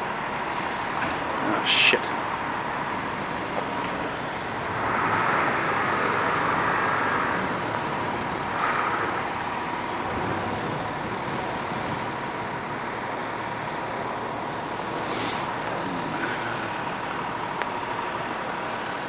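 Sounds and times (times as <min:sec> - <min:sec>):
diesel engine idling: 0:00.0 - 0:19.0
street traffic: 0:00.0 - 0:19.0
car passing: 0:03.2 - 0:13.0.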